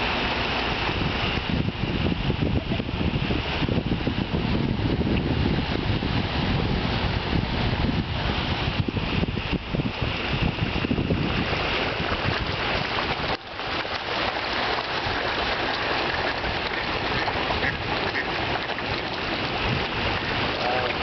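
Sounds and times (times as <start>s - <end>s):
fish thrashing and splashing water: 8.0s - 21.0s.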